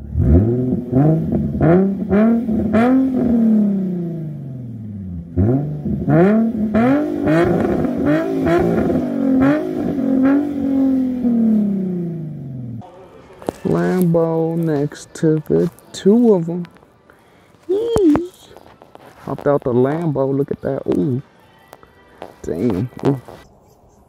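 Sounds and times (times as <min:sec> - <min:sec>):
car engine revving: 0:00.0 - 0:13.0.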